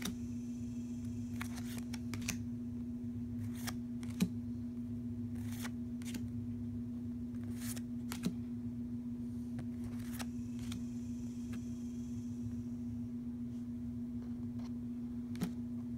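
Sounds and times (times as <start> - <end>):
steady low hum: 0.0 - 15.9
cards sliding against cards: 1.0 - 2.4, 3.4 - 4.3, 5.3 - 6.3, 7.4 - 8.4, 9.5 - 11.7.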